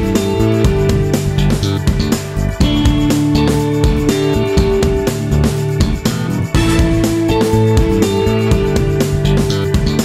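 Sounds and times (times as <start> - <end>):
guitar: 0.0 - 10.0
steady drum beat: 0.0 - 10.0.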